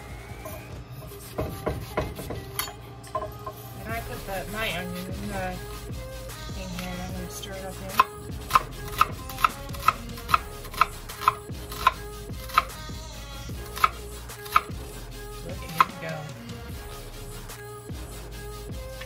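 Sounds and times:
knife chopping onion on wooden board: 7.9 - 12.8, 13.8 - 14.7.

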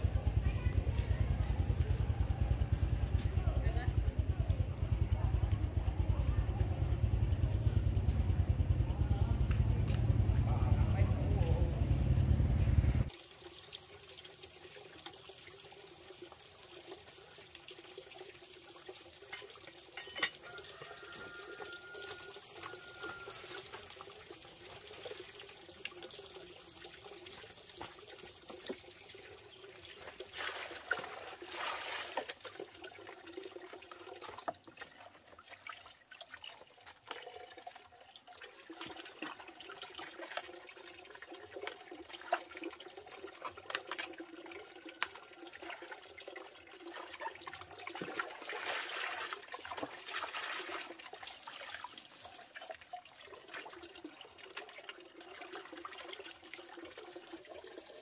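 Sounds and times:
water running into plastic basin: 13.0 - 58.0
water splashing: 20.4 - 58.0.

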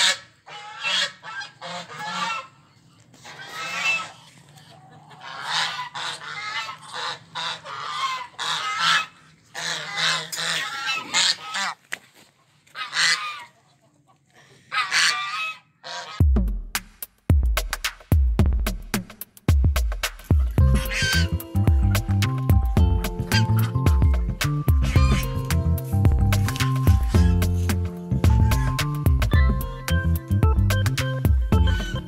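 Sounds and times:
goose honking: 0.0 - 2.6, 3.2 - 4.4, 5.0 - 11.8, 12.8 - 13.6, 14.7 - 16.2, 20.6 - 30.3, 31.5 - 32.0.

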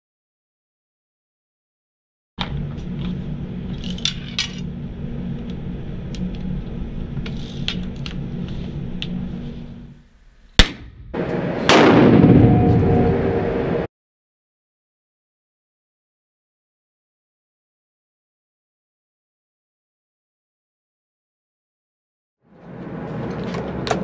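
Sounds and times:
steady low hum: 2.4 - 13.9
sharp gunshot: 10.6 - 11.0, 11.6 - 12.8
loud rushing noise: 11.1 - 13.9.

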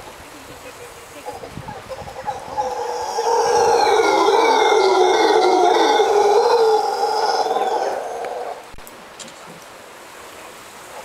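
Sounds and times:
howler monkey howling: 1.2 - 8.8.

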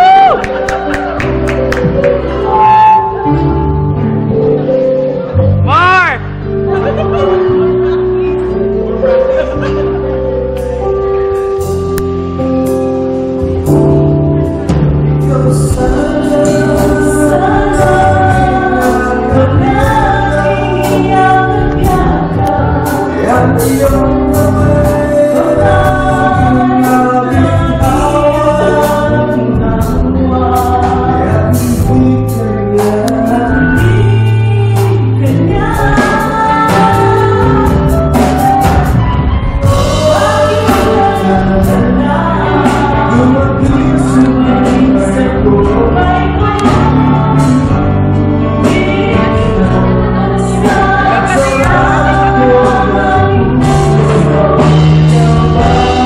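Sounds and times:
live band playing pop ballad: 0.0 - 56.0
man and woman singing in harmony: 15.1 - 38.8, 39.6 - 56.0.

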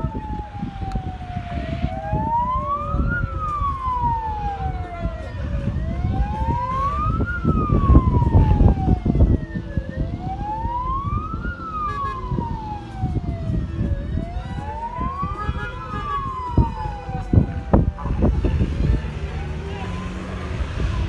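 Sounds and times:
wailing siren: 0.0 - 21.0
heavy low rumble: 16.2 - 21.0.

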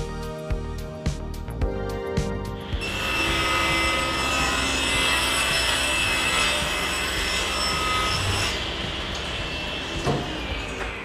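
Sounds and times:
table saw cutting board: 2.7 - 11.0.

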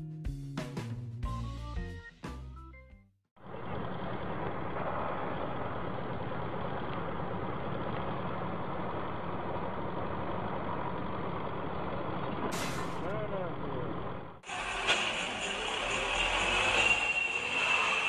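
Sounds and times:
tractor engine running: 3.4 - 17.1.

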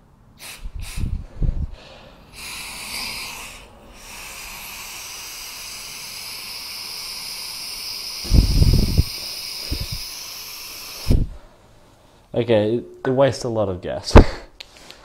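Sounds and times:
gas hissing from nozzle: 0.4 - 1.2, 2.3 - 11.3.

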